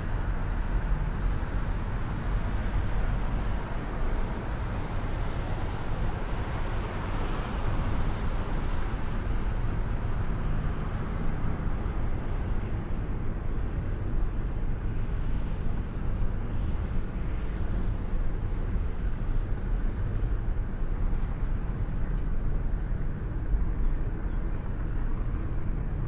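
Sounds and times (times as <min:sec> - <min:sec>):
car engine and tyre rumble: 0:00.0 - 0:26.0.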